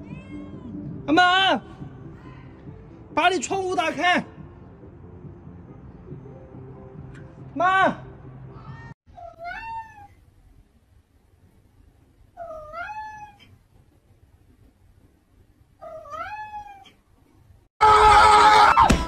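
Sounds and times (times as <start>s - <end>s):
cat meowing: 0.0s - 0.8s, 8.6s - 10.2s, 12.4s - 13.6s, 15.8s - 17.0s.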